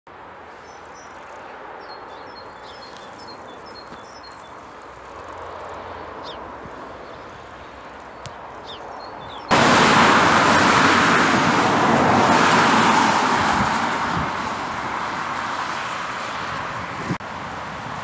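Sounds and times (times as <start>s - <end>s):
wind: 0.1s - 18.0s
small birds chirping: 0.5s - 9.5s.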